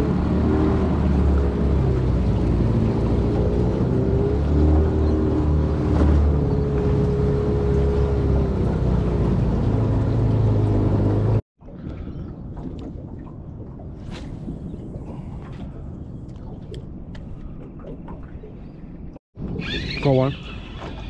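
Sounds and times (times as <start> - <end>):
outboard motor running: 0.0 - 11.4
water noise: 0.0 - 21.0.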